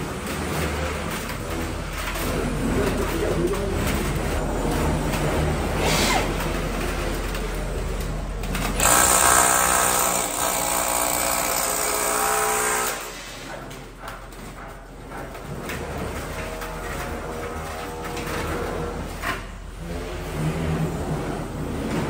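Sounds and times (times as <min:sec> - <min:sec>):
rotary hammer cutting concrete: 0:08.7 - 0:13.1.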